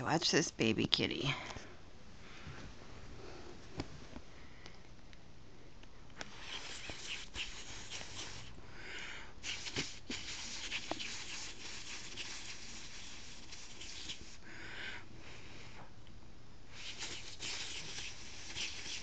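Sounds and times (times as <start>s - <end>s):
kitten sniffing: 6.2s - 8.6s, 9.4s - 14.7s, 16.7s - 19.0s.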